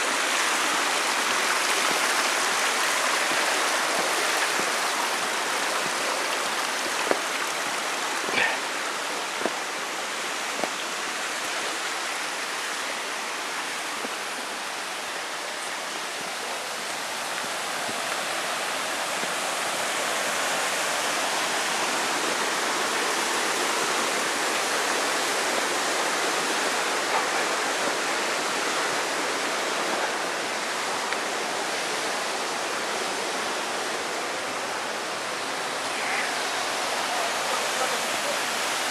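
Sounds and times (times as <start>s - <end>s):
stream water rushing: 0.0s - 38.9s.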